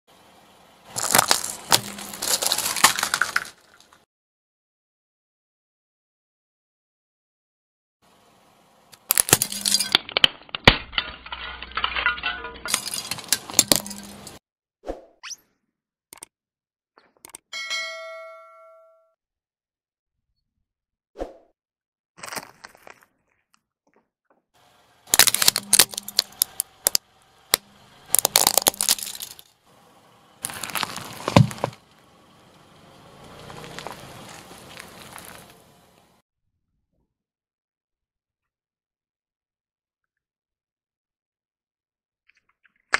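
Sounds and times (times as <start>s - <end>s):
plastic container cracking under tyre: 0.9s - 4.0s, 25.1s - 29.4s, 30.4s - 31.9s.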